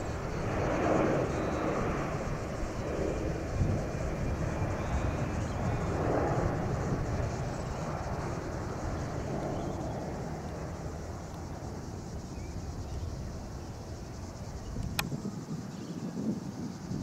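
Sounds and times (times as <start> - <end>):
distant jet engine rumble: 0.0 - 17.0
sharp click: 14.8 - 15.2.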